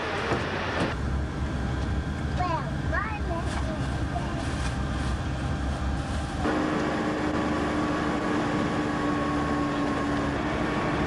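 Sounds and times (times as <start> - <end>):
bus engine and road noise: 0.0 - 11.0
steady whine: 0.0 - 11.0.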